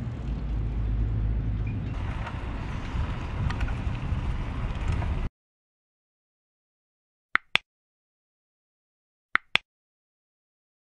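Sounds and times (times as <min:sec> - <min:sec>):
wind rumbling on microphone: 0:00.0 - 0:05.3
sharp mouse clicks: 0:09.4 - 0:09.6.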